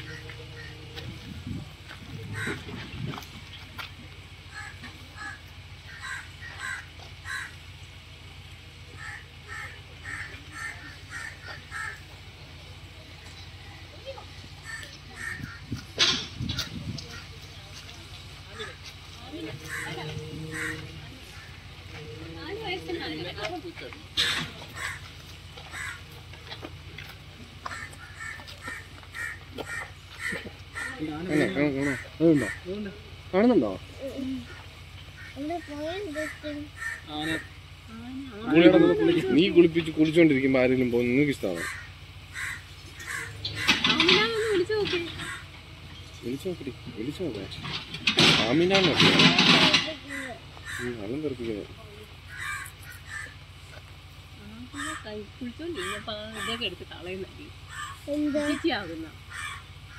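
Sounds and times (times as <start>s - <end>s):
crows cawing: 0.0s - 1.1s, 2.2s - 3.0s, 4.5s - 7.7s, 8.9s - 12.2s, 14.6s - 17.4s, 18.5s - 23.2s, 24.2s - 26.7s, 27.5s - 32.9s, 34.4s - 37.6s, 41.4s - 45.6s, 49.4s - 51.2s, 52.2s - 53.7s, 54.7s - 56.8s, 57.6s - 59.9s
low rumbling noise: 0.0s - 30.9s
birds calling: 0.0s - 59.9s
steady low hum: 0.0s - 59.9s.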